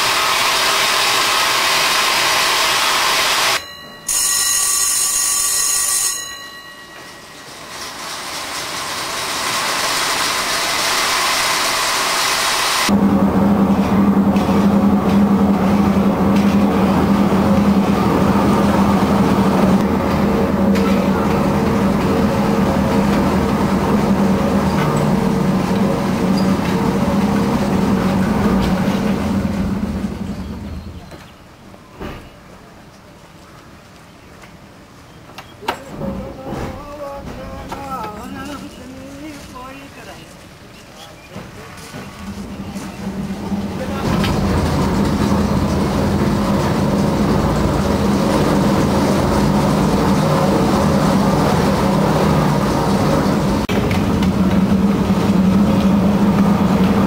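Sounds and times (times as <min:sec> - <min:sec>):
electric signal bell ringing: 0:03.5 - 0:08.3
haulage machine hum: 0:06.5 - 0:31.3, 0:41.3 - 0:57.0
coal tubs rumbling on rails: 0:07.4 - 0:31.2, 0:35.7 - 0:40.3, 0:41.2 - 0:57.0.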